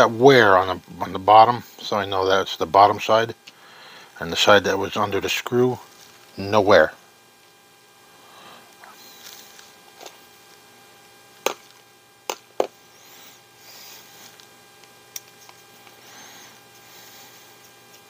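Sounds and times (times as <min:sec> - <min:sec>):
electrical hum: 0:00.0 - 0:18.0
soft handling rustles: 0:05.8 - 0:06.4.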